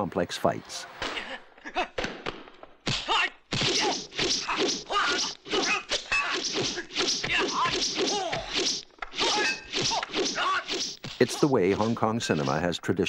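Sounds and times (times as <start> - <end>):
fighters shouting and grunting: 2.9 - 12.7.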